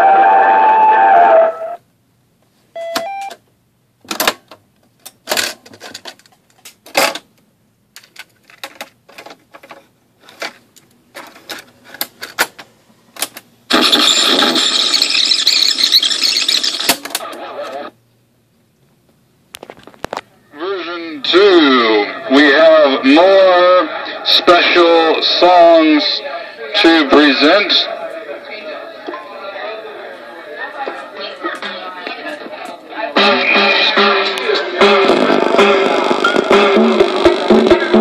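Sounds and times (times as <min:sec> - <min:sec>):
loud noisy speaker burst: 0:00.0 - 0:01.8, 0:13.7 - 0:16.0.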